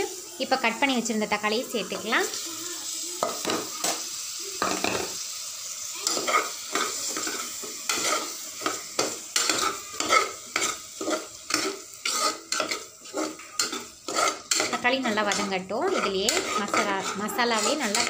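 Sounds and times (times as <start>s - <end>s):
food sizzling in a pot: 0.0s - 18.0s
metal spoon scraping a pot: 6.1s - 18.0s.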